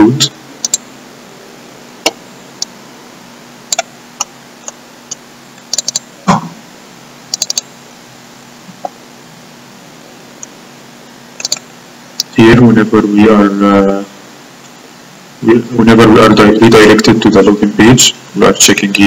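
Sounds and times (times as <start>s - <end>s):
faint steady hum: 0.0s - 19.0s
mouse and keyboard clicks: 0.6s - 0.8s, 5.6s - 6.0s, 7.3s - 7.7s, 11.4s - 11.6s.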